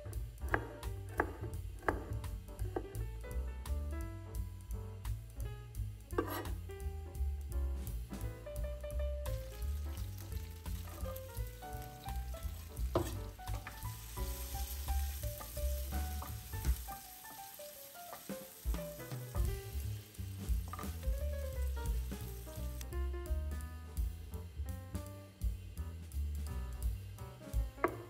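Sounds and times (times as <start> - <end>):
garlic sizzling in butter: 0.0 - 3.1, 5.8 - 7.3, 7.9 - 23.4
background music with bass: 0.0 - 17.2, 18.4 - 28.0.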